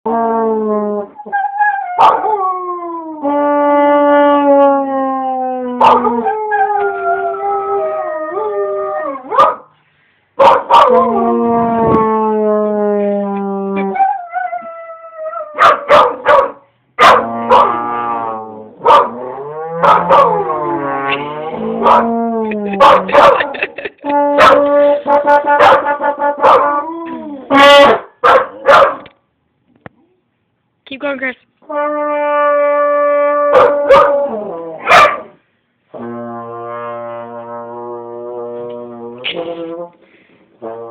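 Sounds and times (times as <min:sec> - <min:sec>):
dog howling: 0:00.1 - 0:09.4, 0:18.8 - 0:20.8, 0:21.7 - 0:23.4, 0:32.3 - 0:35.2
trombone low notes: 0:10.7 - 0:14.1, 0:17.0 - 0:28.0, 0:31.6 - 0:35.0, 0:35.9 - 0:40.9.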